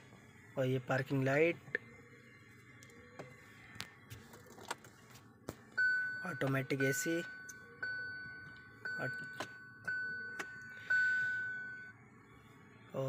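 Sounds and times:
car warning chime dings: 5.8 - 12.0.

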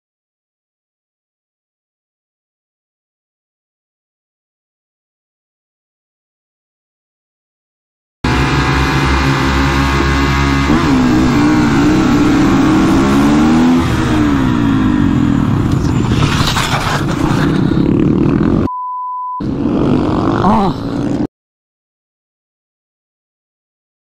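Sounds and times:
motorcycle engine revving: 8.2 - 18.7, 19.4 - 21.3
motorcycle scraping on ground: 8.3 - 18.7, 19.4 - 21.3
steady beep: 18.7 - 19.4.

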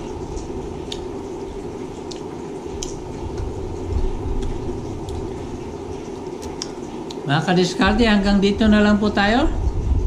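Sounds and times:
steady low hum: 0.0 - 10.0
chewing crispy chips: 2.0 - 5.5, 6.4 - 7.3.

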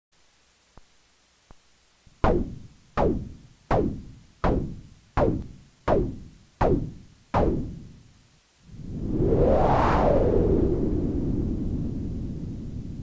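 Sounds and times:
percussive noise hits: 2.2 - 8.0.

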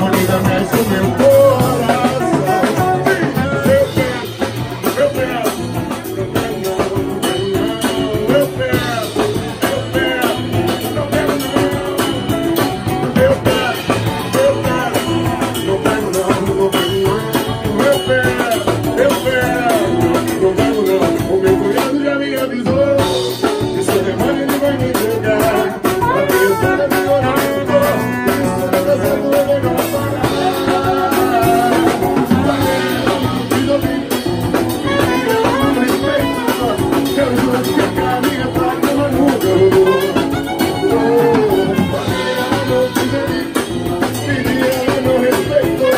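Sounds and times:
man singing into a microphone: 0.0 - 45.9
saxophone: 0.0 - 45.9
nylon-string guitar strumming: 25.5 - 45.9.

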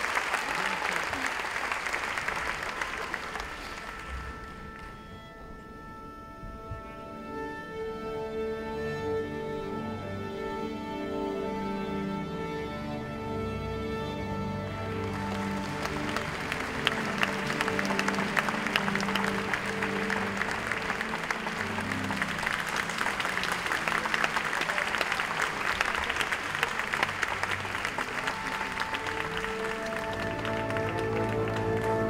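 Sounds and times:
audience applauding: 0.0 - 4.9, 14.8 - 32.0
soft background music: 3.7 - 32.0.

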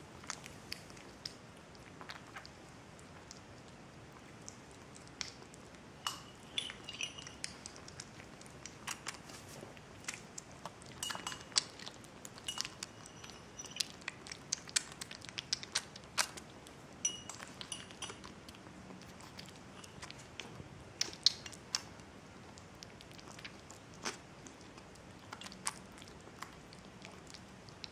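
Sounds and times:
kitten chewing wet food: 0.0 - 27.9
saucer clinking: 6.0 - 7.6, 12.4 - 13.9, 17.0 - 18.2.

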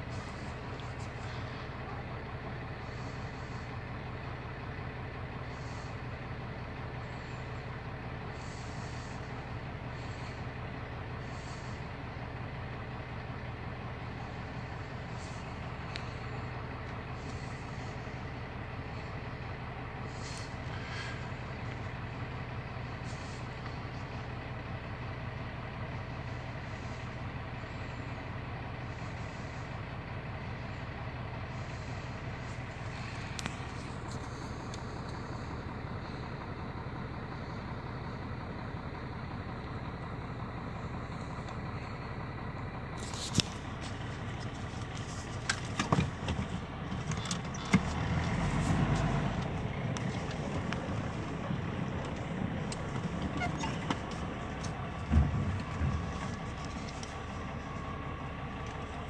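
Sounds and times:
steady mechanical hum: 0.0 - 59.0
rustles: 14.2 - 19.3, 20.0 - 24.7, 42.9 - 59.0.

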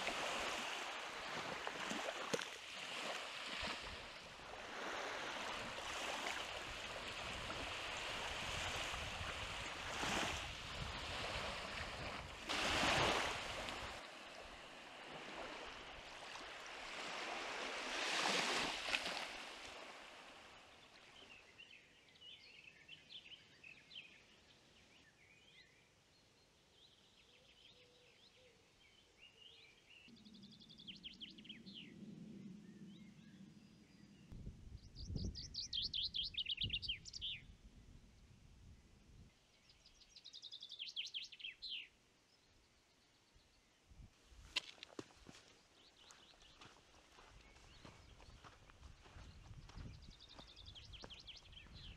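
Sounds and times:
small waves washing on shore: 0.0 - 21.2
songbirds chirping: 19.0 - 51.9.

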